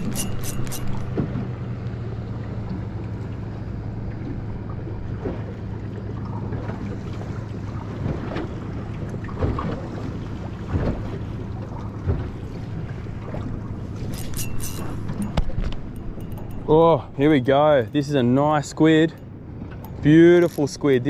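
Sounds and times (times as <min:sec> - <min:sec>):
boat motor humming: 0:00.0 - 0:21.0.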